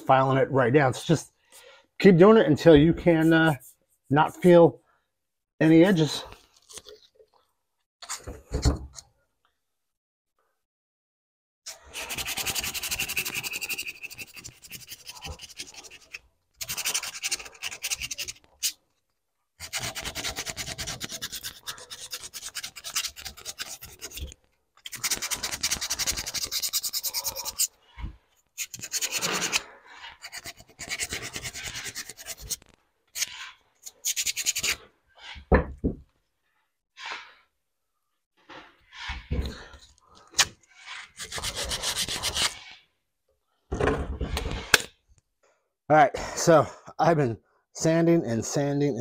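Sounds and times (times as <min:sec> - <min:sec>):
sandpaper rubbing by hand: 0:11.7 - 0:18.8, 0:19.6 - 0:27.7, 0:28.6 - 0:35.4, 0:40.8 - 0:42.8.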